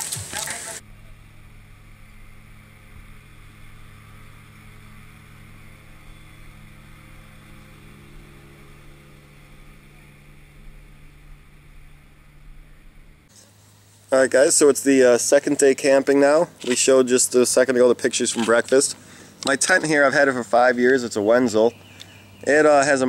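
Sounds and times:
low hum of held tones: 0.6 - 23.0
faint hiss: 13.2 - 17.5.

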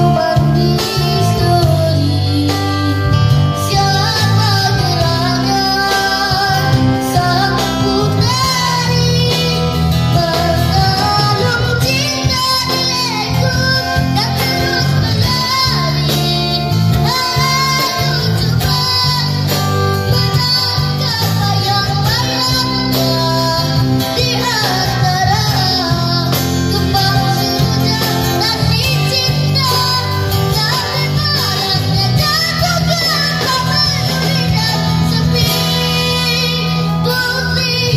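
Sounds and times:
boy singing into a microphone: 0.0 - 37.9
live band with guitars: 0.0 - 37.9.

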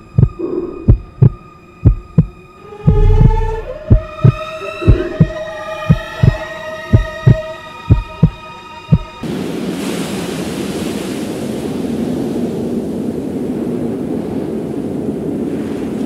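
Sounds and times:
droning tone: 0.0 - 8.6
heartbeat thumps: 0.0 - 9.2
rushing noise: 0.0 - 11.9.

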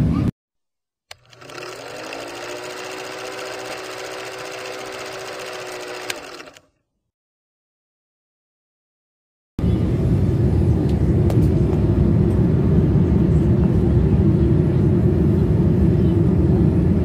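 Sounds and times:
film projector clattering: 1.1 - 6.7.

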